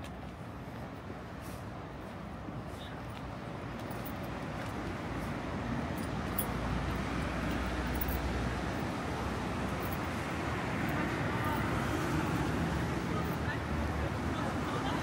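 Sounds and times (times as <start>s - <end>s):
road traffic passing cars: 0.0s - 15.0s.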